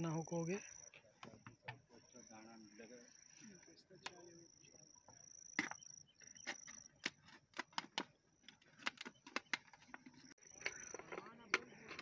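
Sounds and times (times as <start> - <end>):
insect trilling: 0.0 - 1.0, 1.9 - 7.4, 10.1 - 12.0.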